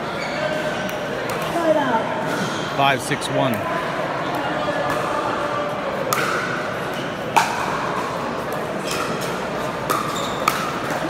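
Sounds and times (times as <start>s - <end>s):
paddles hitting plastic ball: 6.0s - 11.0s.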